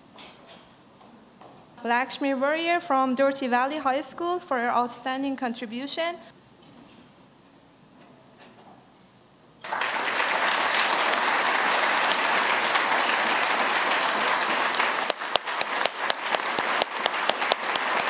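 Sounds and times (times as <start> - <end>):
audience applauding: 9.6 - 18.0.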